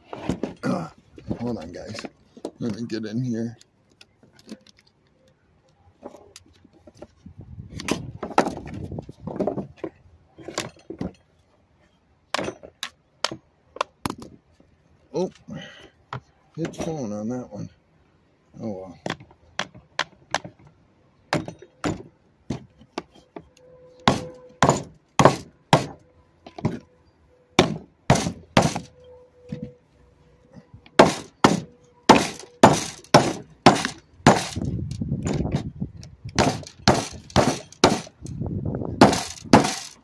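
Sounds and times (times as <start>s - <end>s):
rough grating noise: 30.5s - 35.8s, 36.4s - 38.4s, 39.0s - 40.0s
hammer striking plastic housing: 36.3s - 38.3s, 39.0s - 40.0s.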